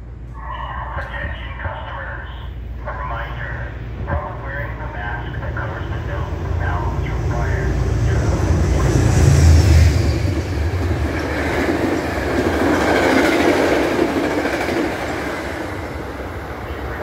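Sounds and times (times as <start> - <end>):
train coaches rushing past on rails: 0.3 - 17.0.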